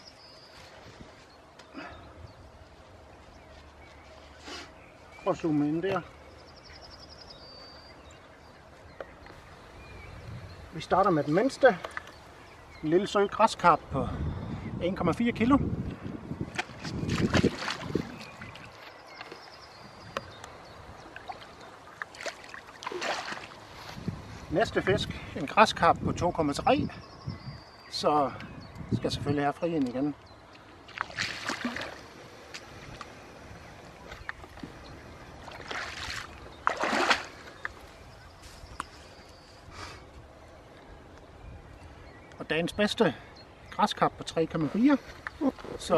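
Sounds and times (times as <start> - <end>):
small water splashes and drips: 16.5 - 19.5, 20.1 - 23.6, 29.9 - 33.1, 35.4 - 37.8
water sloshing and trickling: 16.5 - 24.1, 30.4 - 38.1.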